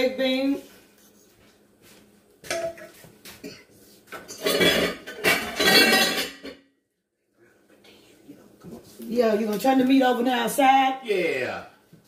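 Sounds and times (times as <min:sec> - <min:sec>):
cookware clinking: 0:02.5 - 0:06.6
pan and lid clattering: 0:04.2 - 0:06.6.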